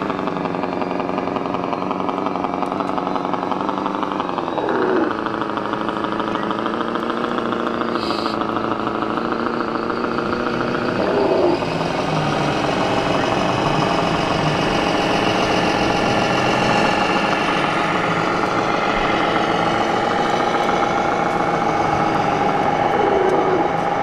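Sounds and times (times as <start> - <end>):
toy truck diesel engine sound: 0.0 - 24.0.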